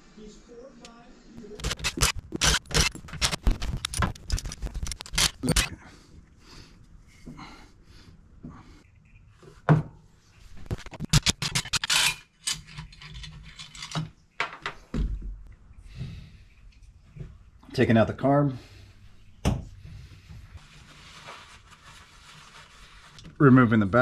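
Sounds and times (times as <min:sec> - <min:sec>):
tools clicking and scraping: 0:01.6 - 0:05.8, 0:10.7 - 0:14.2.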